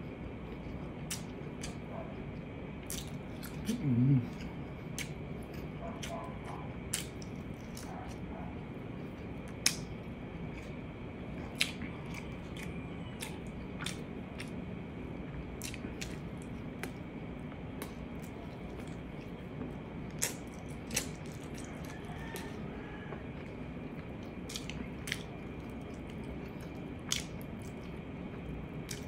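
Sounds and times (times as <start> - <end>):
low room noise: 0.0 - 29.0
person chewing with wet smacks: 0.0 - 29.0.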